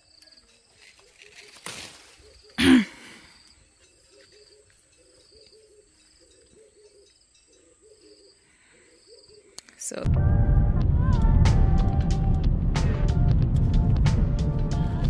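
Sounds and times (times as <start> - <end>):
leaves and branch rustling: 0.0 - 2.6
faint high chirping: 3.2 - 9.8.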